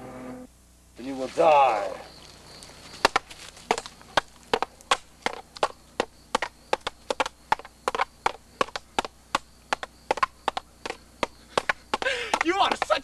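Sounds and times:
wooden sticks clacking: 9.7s - 13.0s.

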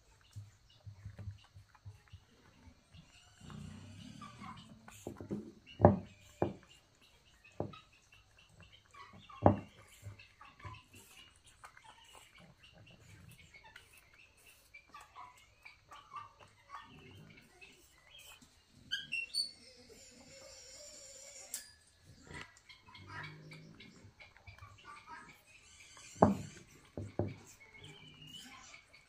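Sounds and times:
monkeys chirping squeaks: 3.2s - 29.0s
knocks on wooden floor: 5.1s - 6.6s, 26.2s - 27.4s.

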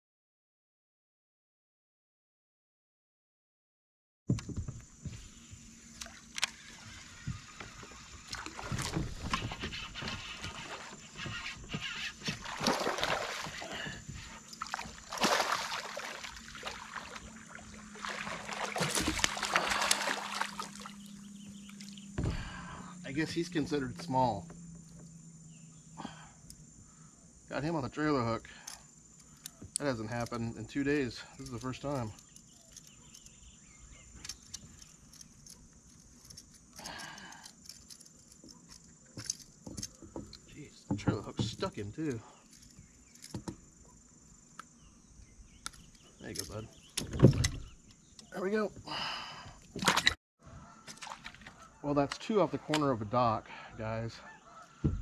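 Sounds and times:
fish splashing at water surface: 12.4s - 13.7s, 14.7s - 21.1s.

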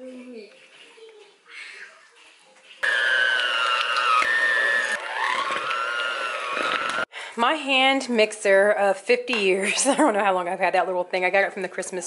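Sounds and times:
electric hand mixer whining: 2.8s - 7.1s.

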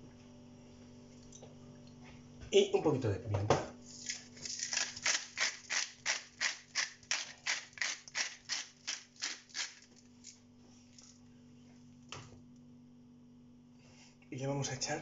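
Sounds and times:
pepper mill grinding: 4.0s - 10.4s.

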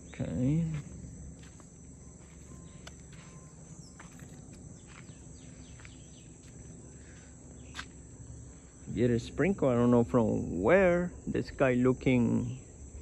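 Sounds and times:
insect chorus buzzing: 0.0s - 13.0s
footsteps on gravel: 0.6s - 8.3s.

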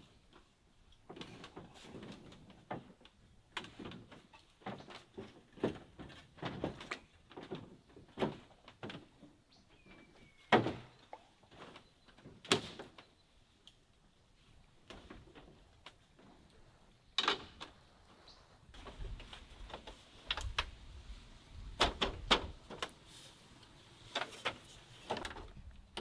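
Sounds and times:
footsteps on bamboo deck: 0.4s - 13.0s.

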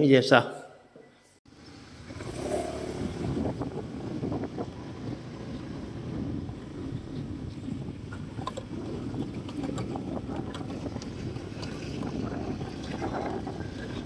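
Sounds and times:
road traffic: 1.5s - 11.5s
motor scooters running: 1.6s - 14.0s
wind rumbling on microphone: 1.8s - 14.0s.

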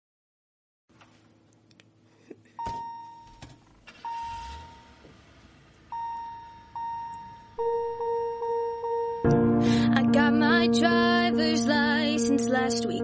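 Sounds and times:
car warning chime dinging: 2.6s - 9.3s.

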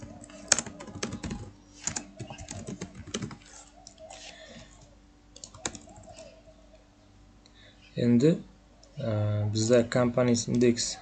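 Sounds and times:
computer keyboard typing: 0.0s - 6.3s.

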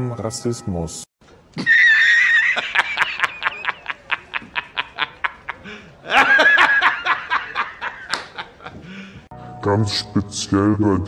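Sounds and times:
man laughing hard: 1.6s - 9.2s.

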